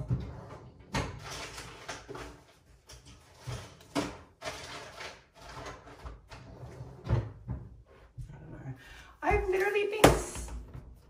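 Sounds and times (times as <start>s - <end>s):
rustling and clatter: 0.0s - 7.7s.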